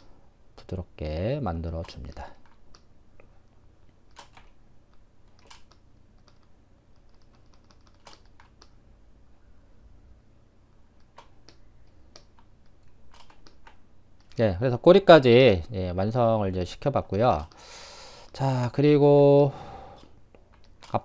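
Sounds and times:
low steady hum: 0.0 - 21.0
computer keyboard and mouse clicks: 1.8 - 2.9, 4.1 - 8.8, 11.0 - 14.4, 17.3 - 17.6, 20.4 - 21.0.

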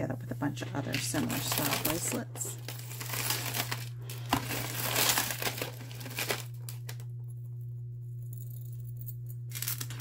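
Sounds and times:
steady low hum: 0.0 - 10.0
packaging crinkling and rustling: 0.6 - 7.1, 9.5 - 10.0.

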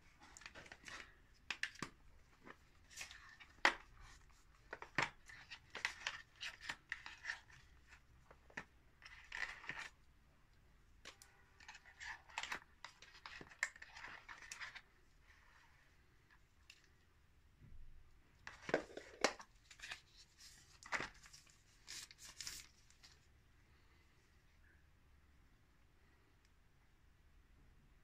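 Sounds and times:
cardboard rustling and scraping: 18.7 - 23.2.

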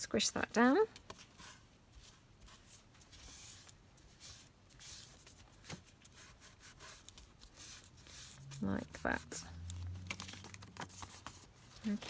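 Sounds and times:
tissue rubbing on wet paper: 6.0 - 9.3.

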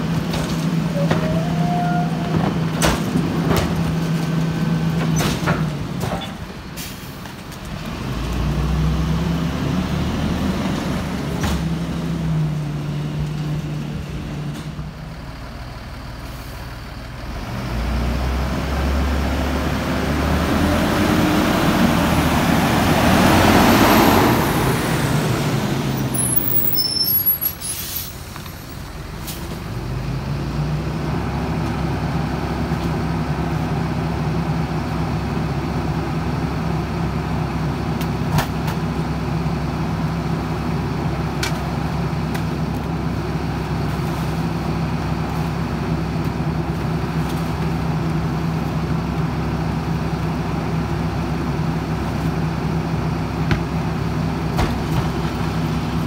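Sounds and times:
diesel truck engine: 0.0 - 56.0
air-brake hisses: 26.8 - 28.4.

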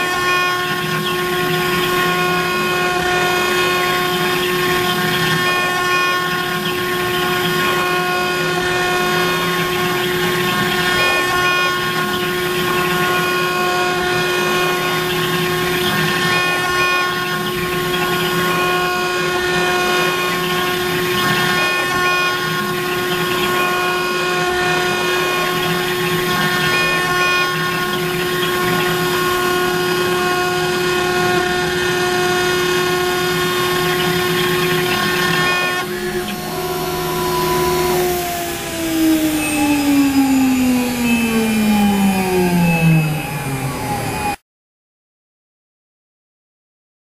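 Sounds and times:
router spindle whining: 0.0 - 44.4.

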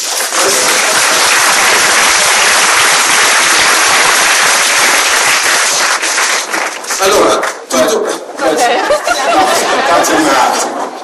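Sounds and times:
audience applauding: 0.0 - 7.7.

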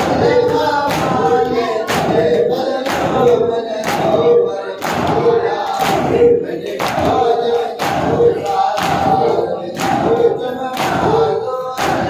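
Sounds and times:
chest-beating slaps: 0.0 - 4.2, 6.8 - 11.2, 11.8 - 12.0
men chanting in unison: 0.0 - 12.0.

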